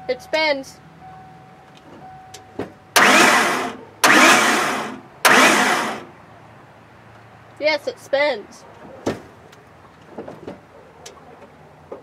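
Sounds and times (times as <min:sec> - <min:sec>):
engine cranked by starter: 0:02.9 - 0:06.1.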